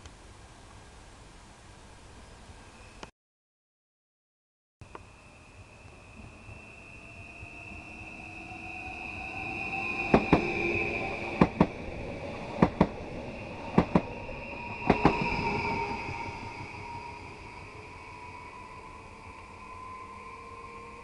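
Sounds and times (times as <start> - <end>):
electric train whine: 4.8 - 21.0
train wheels clicking on rail joints: 10.1 - 10.5, 11.4 - 11.8, 12.6 - 13.0, 13.7 - 14.1, 14.8 - 15.2.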